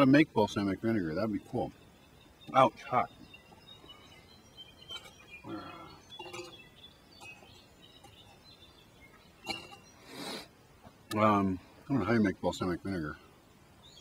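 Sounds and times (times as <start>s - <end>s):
high bird chirps: 1.0s - 10.4s
light clinks: 6.1s - 8.4s.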